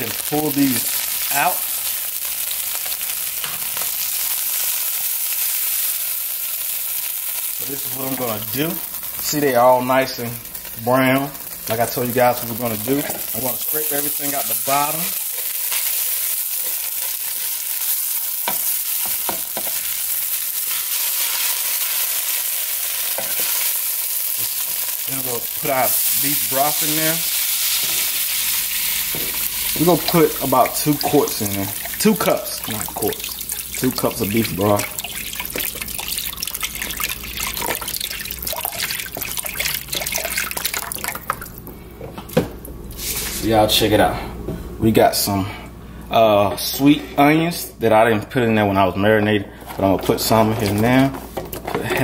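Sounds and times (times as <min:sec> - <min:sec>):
oil sizzling in a pan: 0:00.0 - 0:41.6
broth pouring into hot pan: 0:23.6 - 0:41.5
wooden spoon stirring pan: 0:24.4 - 0:41.3.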